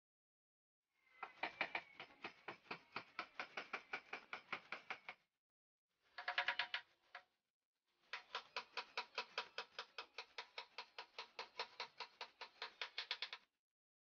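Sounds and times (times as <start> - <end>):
hammer tapping a nail into wood: 1.4 - 5.2, 8.2 - 13.4.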